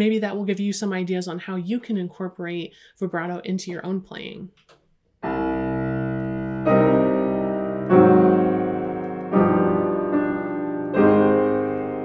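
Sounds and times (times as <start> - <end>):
bassoon playing long notes: 5.2 - 10.2
piano playing: 5.2 - 12.0.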